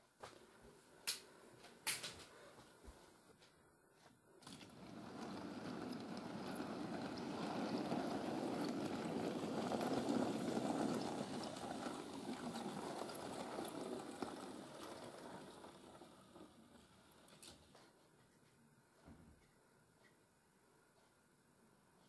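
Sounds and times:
model train rumbling on track: 4.5 - 17.4.

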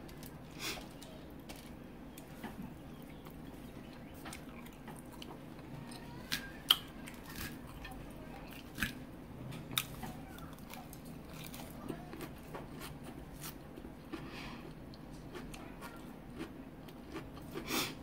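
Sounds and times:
person chewing food: 0.1 - 18.0.

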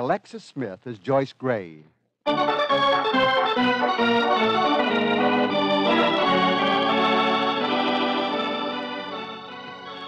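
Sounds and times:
organ music: 2.3 - 10.0.

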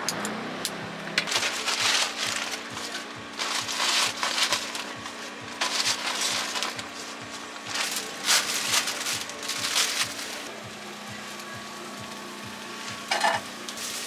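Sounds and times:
steady low hum: 0.0 - 14.0
plastic bag crinkling: 1.2 - 10.5
cabbage sizzling in frying pan: 11.2 - 14.0.

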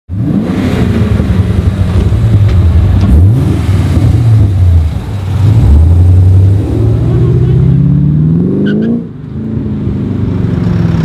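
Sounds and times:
car engine running at low revs: 0.1 - 8.4.

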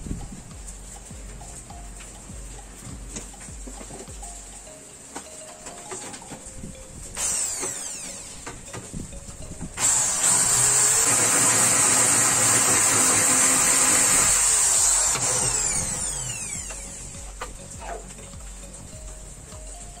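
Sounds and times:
electric drill drilling into plastic: 7.2 - 8.8, 9.8 - 17.1.

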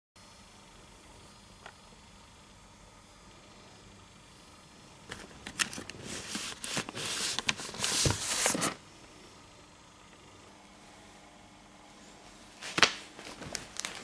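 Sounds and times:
book sliding off shelf: 6.0 - 8.8.

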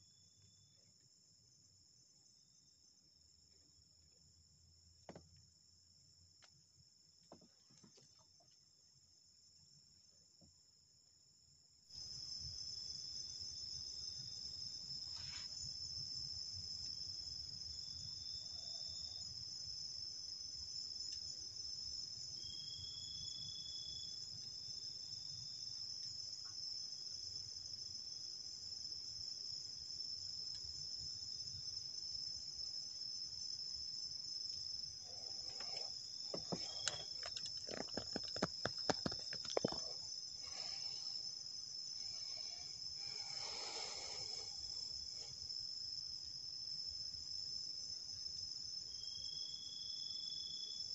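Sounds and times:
crickets and insects trilling: 11.9 - 50.9
clicks and knocks: 36.4 - 40.0.

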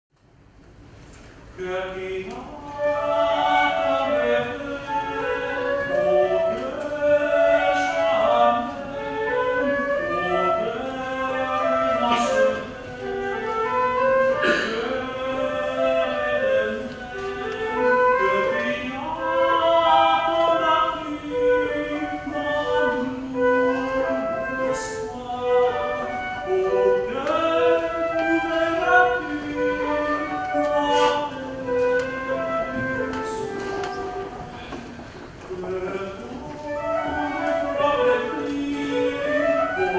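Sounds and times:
tenor singing classical song: 1.0 - 39.9
flute playing: 2.2 - 39.9.

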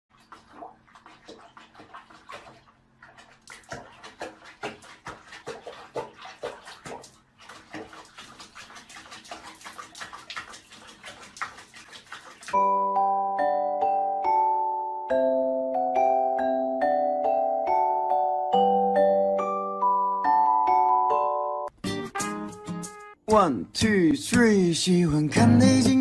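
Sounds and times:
water splashing in a sink: 0.1 - 12.7.

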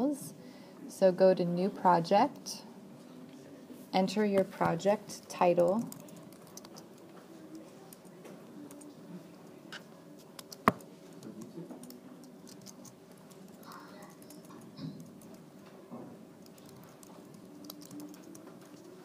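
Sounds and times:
computer keyboard typing: 5.6 - 8.9, 10.2 - 15.4, 16.4 - 19.0.

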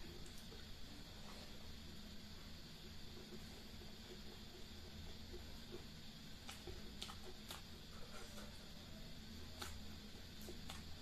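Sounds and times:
low room hum: 0.0 - 11.0
person chewing food: 3.2 - 8.0.

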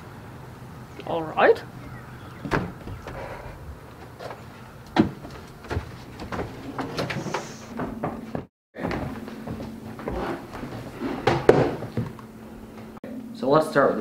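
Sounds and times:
door knocks and thumps: 2.4 - 3.3, 5.0 - 9.1
footsteps: 2.4 - 13.0.

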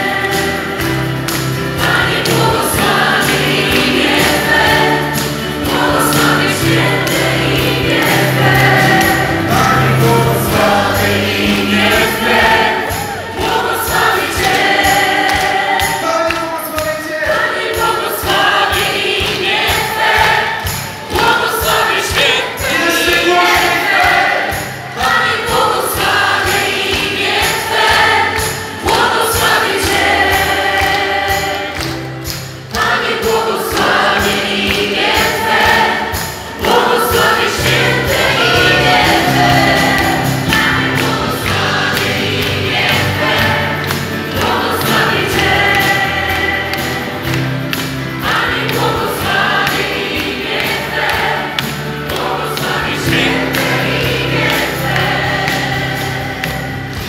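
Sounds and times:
drums: 0.0 - 16.0, 17.2 - 57.0
group singing worship song: 0.0 - 57.0.

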